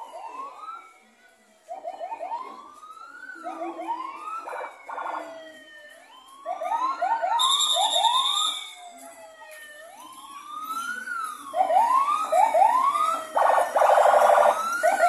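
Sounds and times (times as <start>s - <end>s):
electronic police siren: 0.0s - 15.0s
shrill whistle blast: 7.4s - 8.7s.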